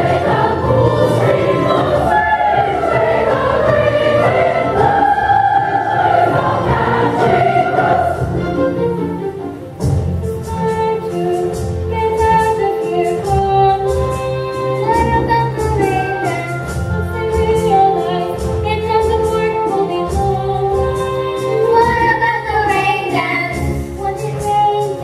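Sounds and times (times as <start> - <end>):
children's chorus singing: 0.0 - 8.6
instrumental accompaniment with beat: 0.0 - 25.0.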